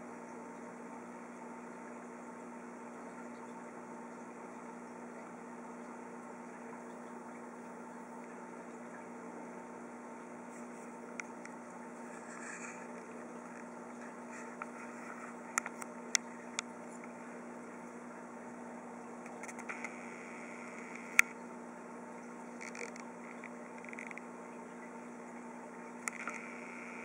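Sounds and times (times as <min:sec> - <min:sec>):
aquarium equipment hum and hiss: 0:00.0 - 0:27.0
sharp clicks: 0:19.2 - 0:21.4.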